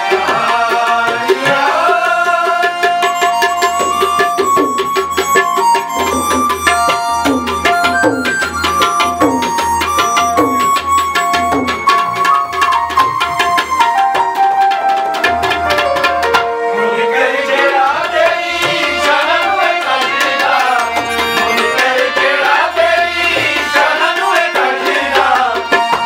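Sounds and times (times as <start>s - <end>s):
tabla playing fast rhythm: 0.0s - 26.0s
melody of held notes: 2.9s - 23.5s.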